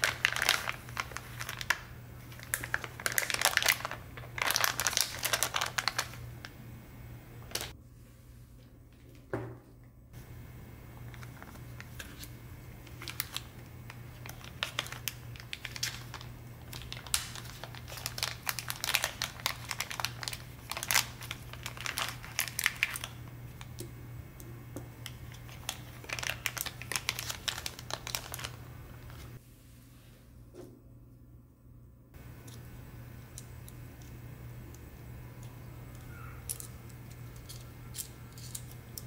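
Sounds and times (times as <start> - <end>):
plastic bag crinkling: 0.0 - 6.2, 7.4 - 7.8, 11.0 - 23.7, 25.0 - 29.4
steady low hum: 0.0 - 39.0.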